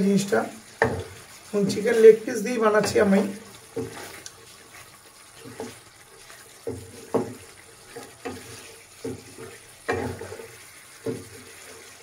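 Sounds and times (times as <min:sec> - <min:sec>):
gravy sizzling: 0:00.0 - 0:12.0
spatula scraping a pan: 0:00.7 - 0:12.0.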